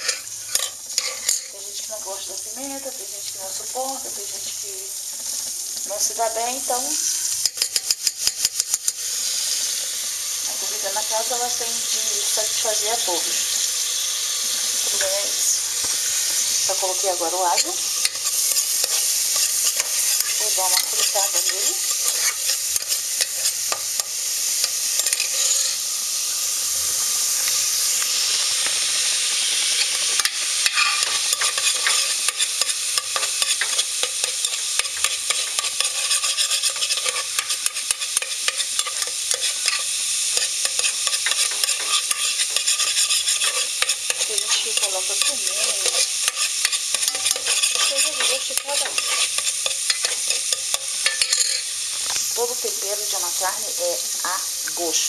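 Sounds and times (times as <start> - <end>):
utensil scraping a pot: 0.0 - 1.6, 16.1 - 25.8, 29.8 - 51.7
garlic sizzling in a pot: 0.0 - 55.0.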